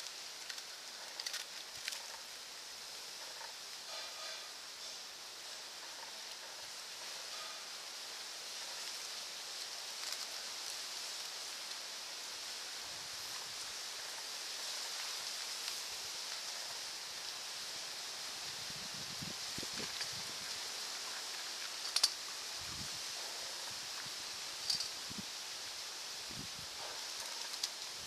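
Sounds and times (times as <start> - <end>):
outdoor background hiss: 0.0 - 28.0.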